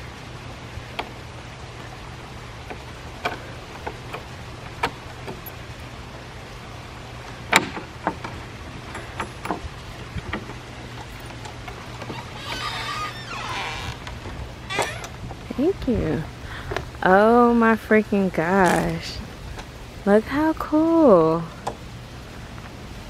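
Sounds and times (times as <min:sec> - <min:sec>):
padlock and gate bolt clinking: 0:07.5 - 0:12.9.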